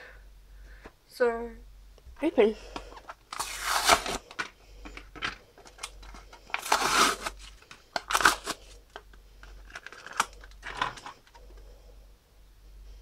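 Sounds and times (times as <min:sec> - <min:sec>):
plastic packaging clicks and crinkles: 0:02.8 - 0:11.6
crackling plastic rustles: 0:02.9 - 0:11.6.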